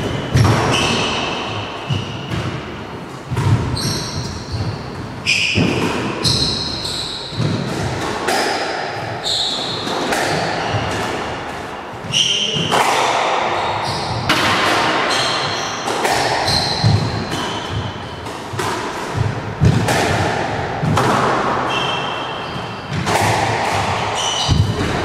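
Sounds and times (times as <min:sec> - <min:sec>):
sneakers squeaking on wooden floor: 0:00.0 - 0:02.7, 0:03.3 - 0:08.0, 0:09.1 - 0:11.4, 0:12.0 - 0:12.7, 0:13.6 - 0:14.3, 0:15.0 - 0:19.2, 0:21.6 - 0:23.1
squash ball hitting rackets and walls: 0:00.0 - 0:25.0.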